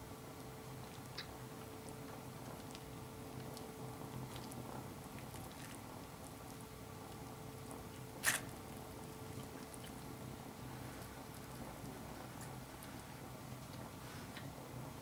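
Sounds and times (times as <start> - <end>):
faint steady hum: 0.0 - 15.0
soft squishing of meat: 0.0 - 15.0.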